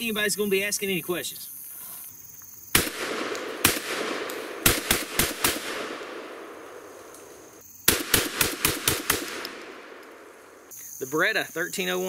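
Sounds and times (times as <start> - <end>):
shotgun shots echoing: 2.7 - 10.6.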